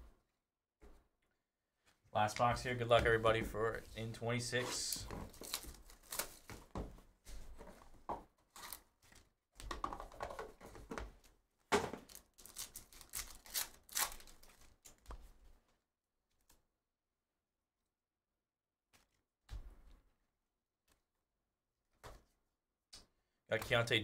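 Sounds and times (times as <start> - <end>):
packaging tearing and crinkling: 5.3 - 6.5, 12.0 - 14.8.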